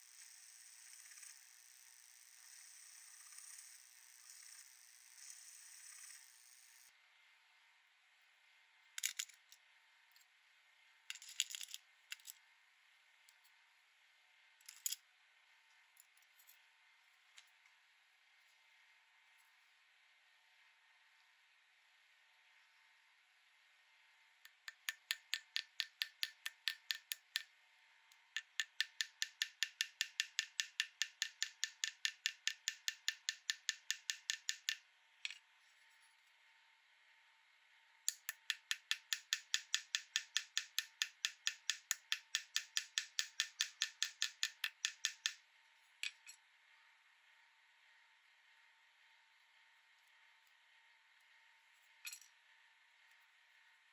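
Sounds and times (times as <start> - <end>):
small hammer tapping on metal: 24.5 - 27.5, 28.4 - 35.4, 38.1 - 45.4.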